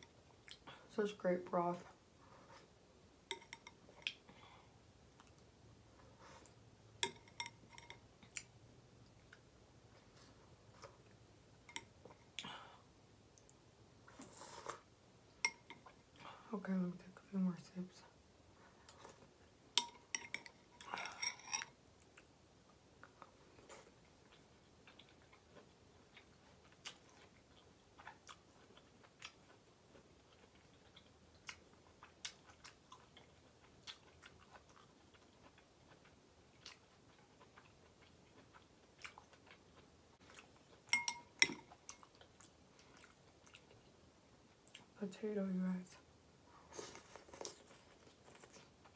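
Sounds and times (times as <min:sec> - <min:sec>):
metal spoon clinking in glass bowl: 0:40.9 - 0:41.6.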